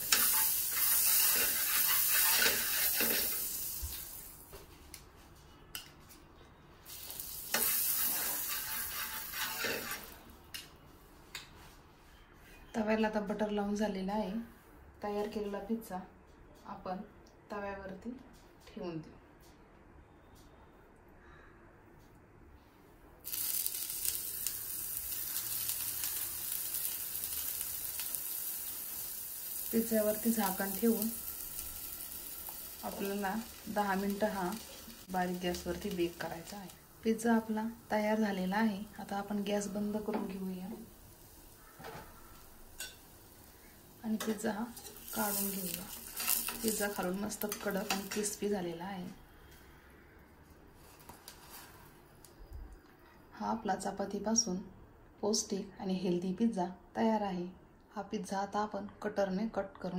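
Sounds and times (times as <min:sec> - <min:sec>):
butter sizzling on griddle: 0:00.0 - 0:04.4, 0:06.9 - 0:10.2, 0:23.2 - 0:38.1, 0:38.7 - 0:43.6, 0:44.4 - 0:48.4
spoon scraping pan: 0:00.1 - 0:03.5, 0:07.5 - 0:10.2, 0:41.8 - 0:43.1, 0:44.2 - 0:48.4.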